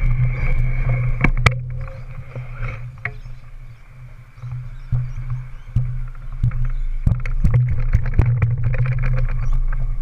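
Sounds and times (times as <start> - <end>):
bike tyres humming on concrete: 0.0 - 10.0
bike knocking over bumps: 4.5 - 10.0.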